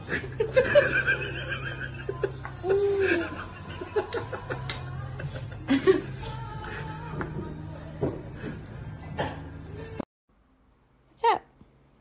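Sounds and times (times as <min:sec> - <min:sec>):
man laughing: 0:00.0 - 0:06.2.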